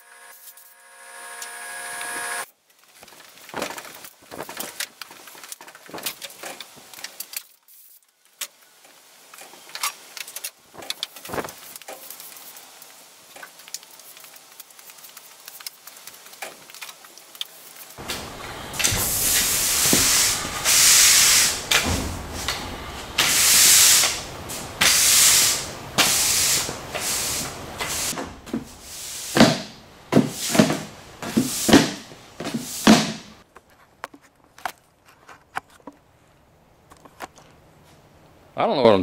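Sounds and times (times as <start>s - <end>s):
push broom sweeping concrete: 18.0s - 33.4s.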